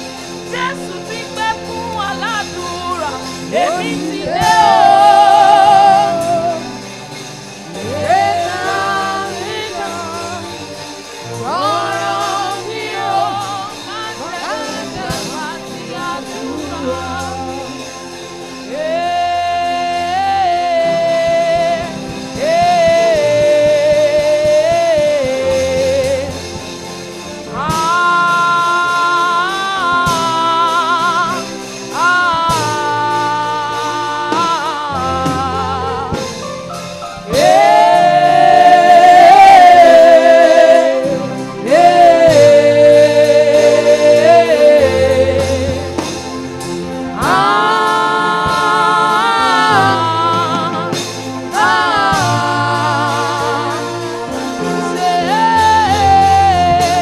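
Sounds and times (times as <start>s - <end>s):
sustained instrumental backing: 0.0s - 57.0s
woman singing into a microphone: 27.6s - 36.4s, 47.2s - 57.0s.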